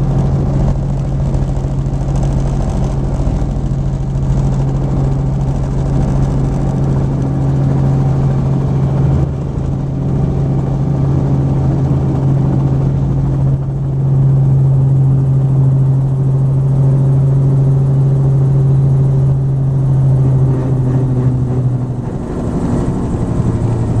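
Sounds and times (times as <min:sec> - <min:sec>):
helicopter engine and rotor: 0:00.0 - 0:24.0.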